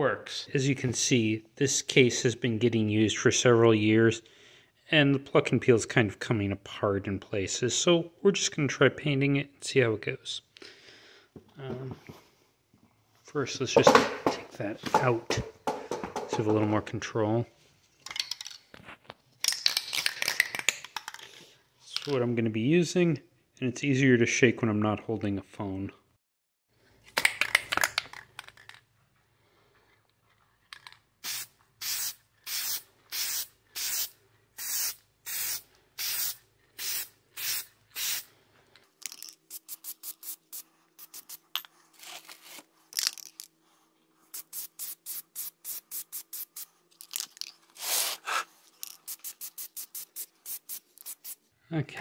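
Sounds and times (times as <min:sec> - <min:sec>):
aerosol can spray bursts: 0:31.2 - 0:38.3, 0:39.5 - 0:41.5, 0:44.3 - 0:46.7, 0:49.0 - 0:51.4.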